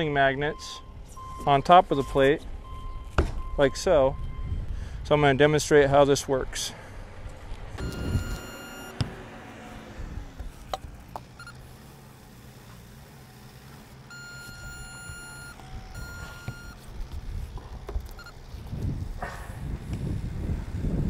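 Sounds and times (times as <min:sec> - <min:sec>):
electronic tool beeping: 0:07.8 - 0:09.1, 0:11.4 - 0:11.6, 0:14.1 - 0:16.8, 0:18.1 - 0:18.4.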